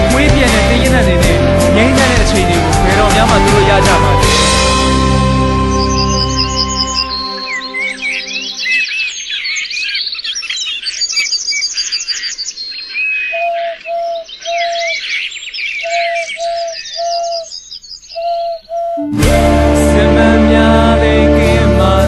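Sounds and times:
birds chirping and trilling: 0:00.0 - 0:19.1
low whistled bird note: 0:01.4 - 0:08.9, 0:18.2 - 0:20.0.

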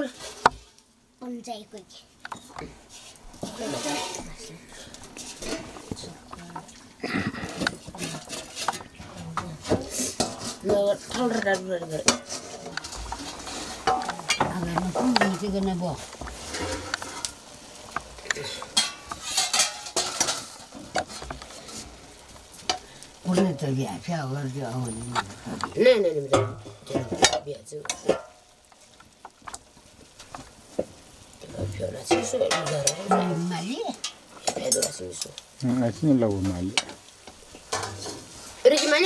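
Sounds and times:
light sizzling: 0:00.0 - 0:39.0
spatula scraping in metal wok: 0:02.3 - 0:06.1, 0:07.4 - 0:23.8, 0:36.4 - 0:39.0.

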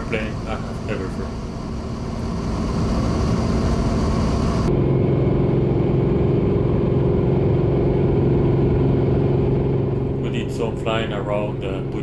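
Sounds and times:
aircraft engine and propeller drone: 0:00.0 - 0:12.0.

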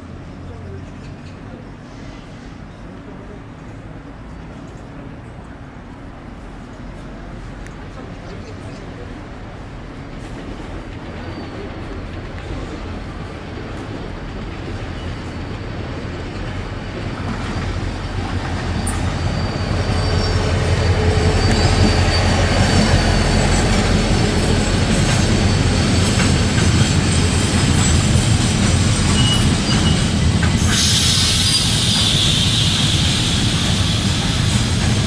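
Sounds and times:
train rumbling on rails: 0:00.0 - 0:35.0
high wheel squeal: 0:14.6 - 0:35.0.

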